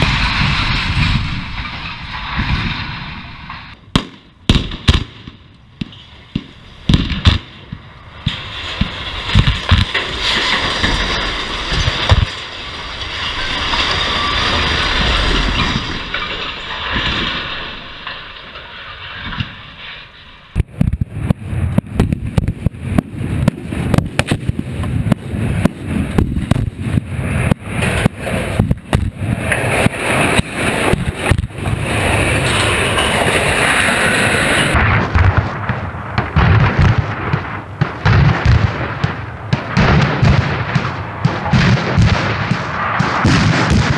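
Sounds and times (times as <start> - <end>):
explosive charges cracking and booming: 0.0 - 19.8, 20.5 - 43.9
tower crashing down: 8.2 - 35.1.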